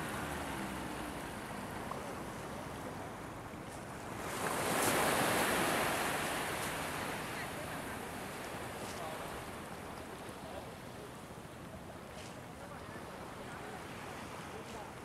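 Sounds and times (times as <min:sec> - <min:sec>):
sea surf washing on shore: 0:00.0 - 0:15.0.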